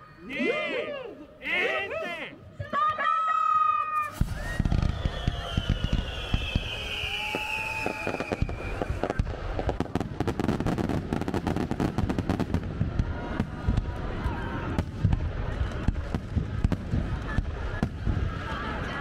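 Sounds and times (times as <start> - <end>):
fireworks crackles and bangs: 3.9 - 19.0
whistling firework shell: 4.0 - 9.3.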